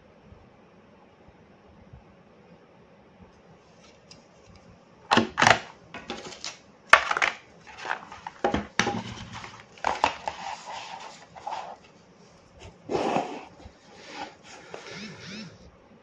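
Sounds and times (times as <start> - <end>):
cardboard rustling and crinkling: 3.7 - 14.9
cardboard and plastic knocks: 5.1 - 6.3, 6.9 - 10.3.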